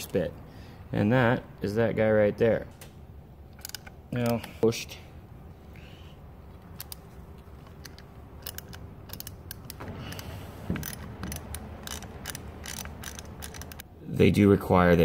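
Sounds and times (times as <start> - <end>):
hand ratchet clicking: 6.6 - 13.9.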